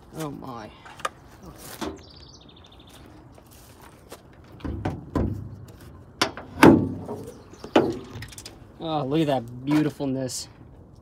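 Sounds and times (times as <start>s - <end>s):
small bird chirping: 2.0s - 3.2s, 7.2s - 8.4s
dull thumps and knocks: 4.5s - 8.3s.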